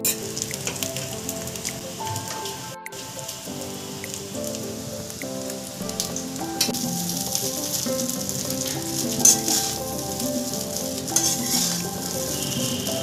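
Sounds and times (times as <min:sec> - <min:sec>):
rice frying sizzle: 0:00.0 - 0:13.0
soft background music: 0:00.0 - 0:13.0
metal spatula scraping pan: 0:11.2 - 0:12.1.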